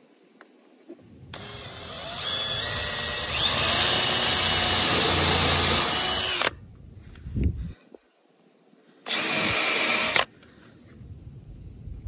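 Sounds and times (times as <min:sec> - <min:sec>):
cordless drill boring into wood: 0:01.3 - 0:06.6, 0:09.1 - 0:10.3.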